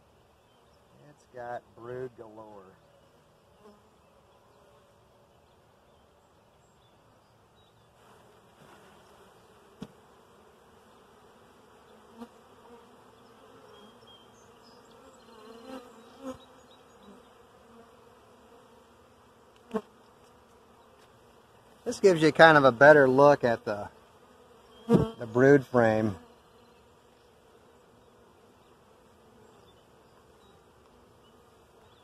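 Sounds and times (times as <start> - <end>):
bees buzzing: 8.0 - 32.0.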